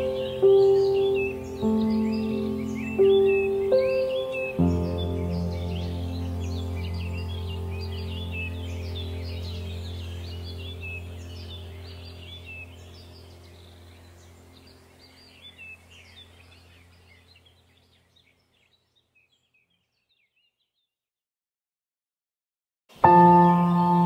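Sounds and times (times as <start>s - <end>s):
low steady drone: 0.0s - 17.1s
birds chirping: 0.0s - 20.9s, 22.9s - 24.0s.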